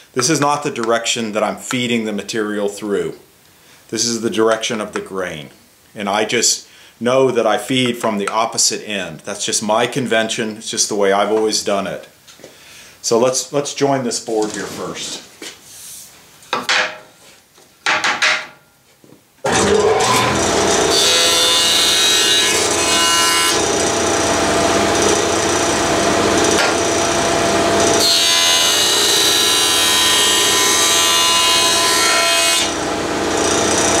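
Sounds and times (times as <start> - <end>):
jointer machine running: 19.5 - 32.0, 32.6 - 34.0
jointer cutting wood board: 19.5 - 34.0.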